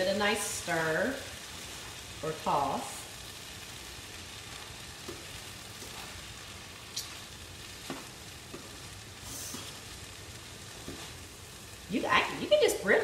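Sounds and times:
fried rice sizzling in a pan: 0.0s - 13.0s
spatula scraping a pan: 5.1s - 6.4s, 7.0s - 10.0s, 10.6s - 11.3s.

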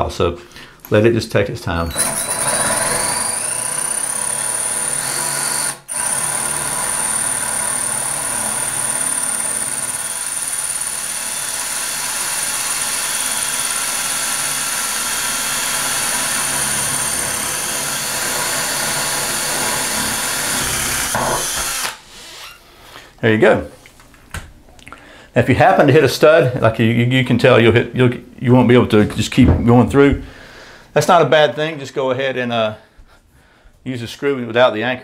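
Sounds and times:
cordless drill boring into tile: 1.9s - 22.6s.

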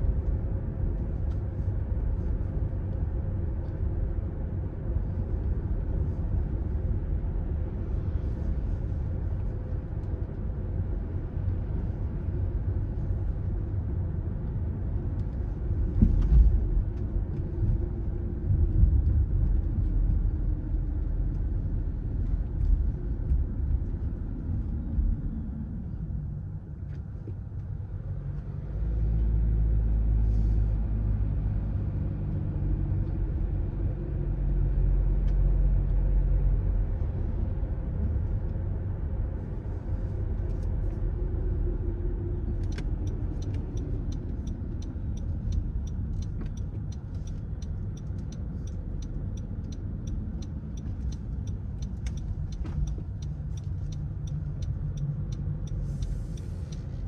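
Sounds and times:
car engine and tyre rumble: 0.0s - 57.0s
light ticking: 42.5s - 57.0s.

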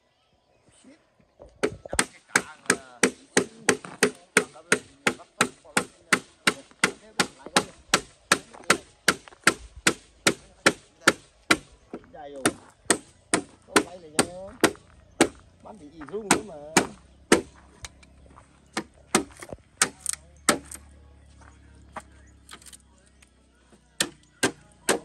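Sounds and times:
blade chopping bamboo: 16.3s - 17.5s, 24.0s - 25.0s.

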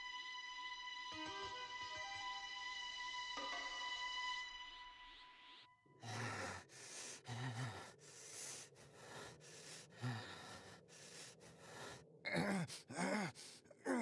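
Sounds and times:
gasping breaths and grunts: 6.0s - 14.0s
groan: 12.2s - 14.0s.

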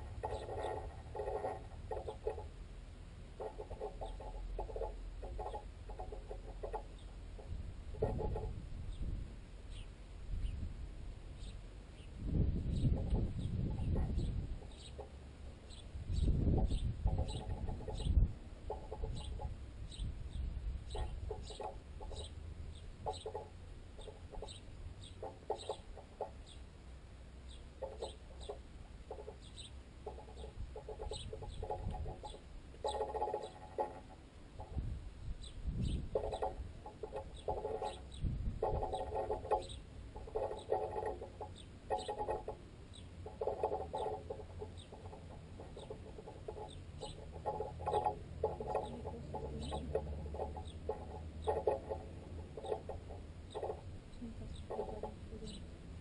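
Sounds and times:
birds pecking taps: 0.0s - 2.5s, 3.4s - 8.5s, 20.9s - 22.4s, 23.0s - 26.6s, 27.5s - 34.8s, 36.0s - 55.7s
sparrows chirping: 0.0s - 2.5s, 3.4s - 10.7s, 11.3s - 26.7s, 27.4s - 55.8s.

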